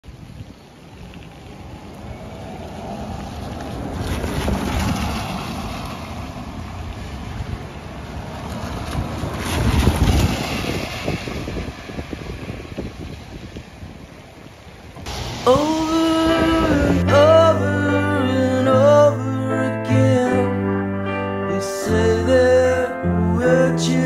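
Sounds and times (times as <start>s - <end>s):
tyre hiss on wet street: 0.1s - 17.6s.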